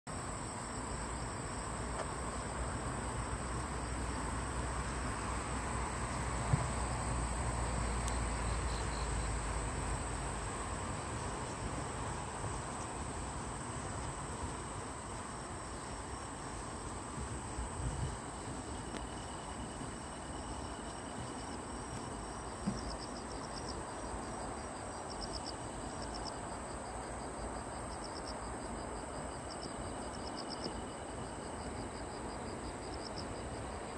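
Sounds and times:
crickets and night insects trilling: 0:00.1 - 0:33.9.

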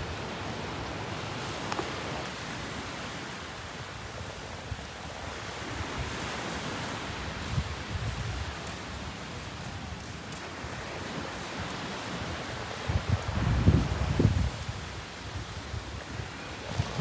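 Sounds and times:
gentle surf washing on shore: 0:00.0 - 0:17.0
light wind: 0:00.0 - 0:17.0.

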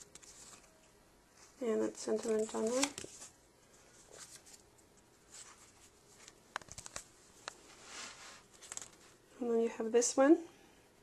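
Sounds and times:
paper pages rustling: 0:00.0 - 0:00.8, 0:01.4 - 0:09.2.

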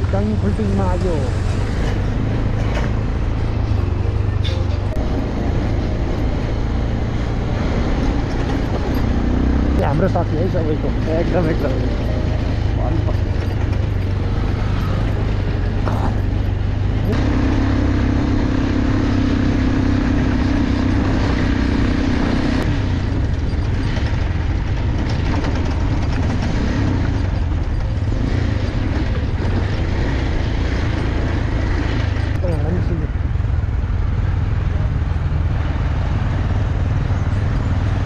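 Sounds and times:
motorcycle engine: 0:00.0 - 0:38.0
road and wind rumble: 0:00.0 - 0:38.0.

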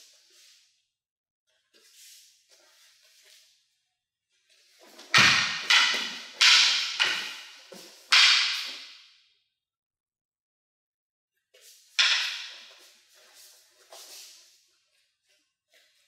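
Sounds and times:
wooden swords clacking: 0:04.8 - 0:09.1, 0:11.9 - 0:14.4.

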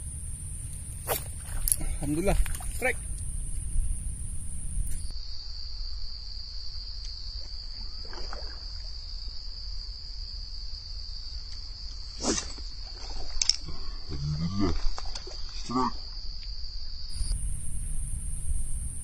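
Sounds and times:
low rumble: 0:00.0 - 0:05.1, 0:17.1 - 0:19.0
insects trilling: 0:00.0 - 0:19.0.

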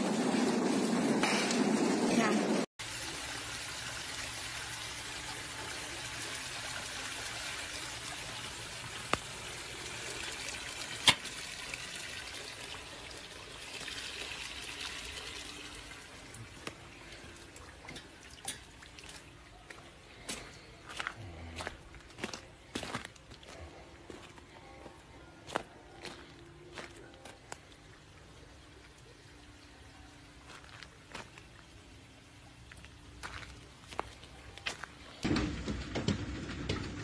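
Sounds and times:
hail and rain hissing: 0:35.2 - 0:37.0
hailstones knocking on hard surface: 0:35.2 - 0:37.0.

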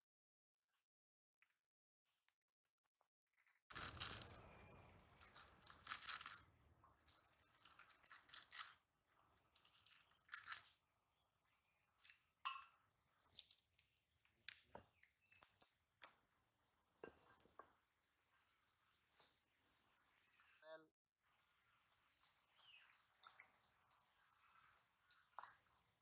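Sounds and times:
spinach stems snapping and tearing: 0:03.7 - 0:06.4, 0:07.6 - 0:08.8, 0:09.8 - 0:10.8.

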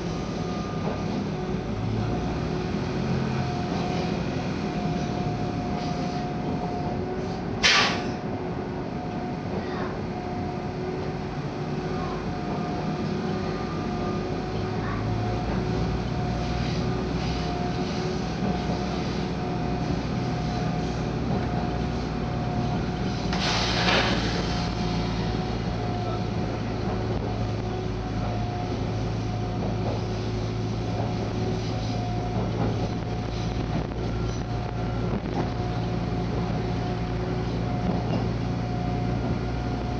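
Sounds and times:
train carriage drone: 0:00.0 - 0:39.9
rush of hiss: 0:23.4 - 0:24.4.

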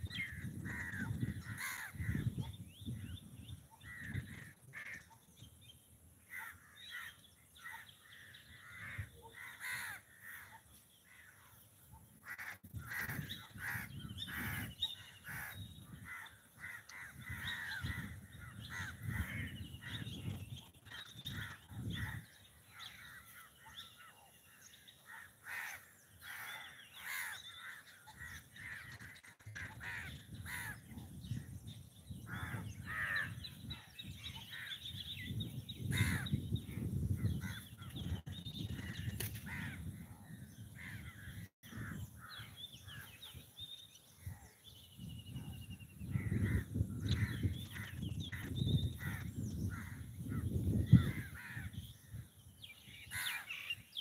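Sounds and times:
birds chirping: 0:00.0 - 0:54.0
crows cawing: 0:00.2 - 0:02.3, 0:03.8 - 0:05.2, 0:06.3 - 0:11.6, 0:12.2 - 0:20.0, 0:25.0 - 0:30.8, 0:32.3 - 0:33.6, 0:35.9 - 0:36.3, 0:38.8 - 0:40.0, 0:46.2 - 0:51.9, 0:53.1 - 0:53.7.

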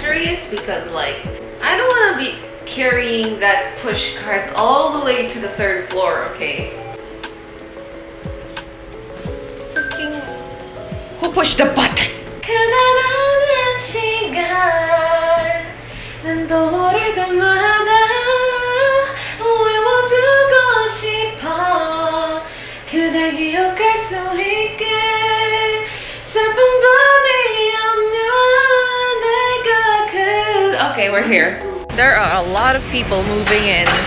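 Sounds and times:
woman singing: 0:00.0 - 0:06.9, 0:11.2 - 0:34.0
steady low note: 0:31.4 - 0:34.0.

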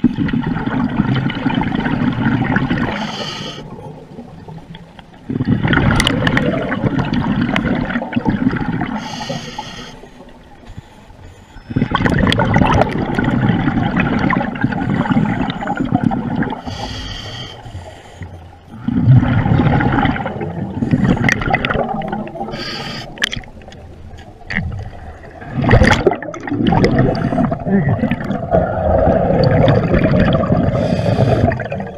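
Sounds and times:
exhaled bubbles rushing: 0:00.0 - 0:04.5, 0:05.2 - 0:09.1, 0:11.7 - 0:16.8, 0:18.6 - 0:23.7, 0:24.4 - 0:31.9
regulator inhale hiss: 0:02.9 - 0:03.7, 0:08.9 - 0:11.9, 0:16.6 - 0:18.6, 0:22.5 - 0:23.3, 0:30.8 - 0:31.6.

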